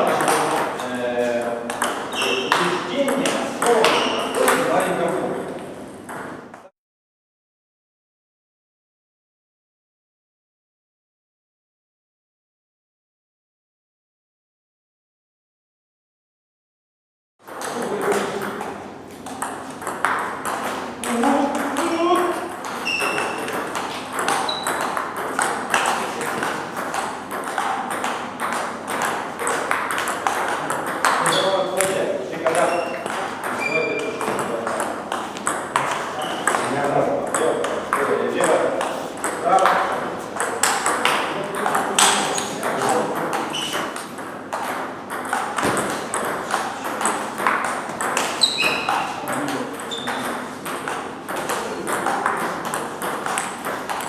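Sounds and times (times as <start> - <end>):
ball hits from neighbouring table: 1.7 - 5.1, 17.5 - 54.0
table tennis ball clicking: 17.5 - 36.7.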